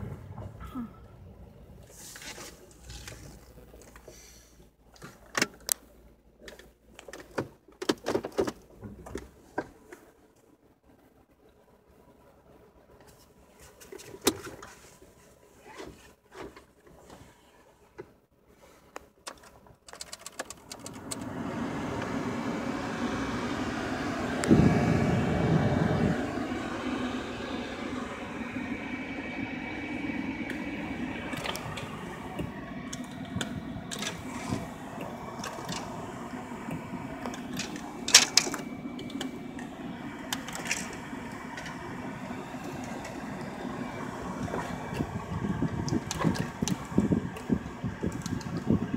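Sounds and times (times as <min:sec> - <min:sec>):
climate control blower running: 0:20.8 - 0:48.9.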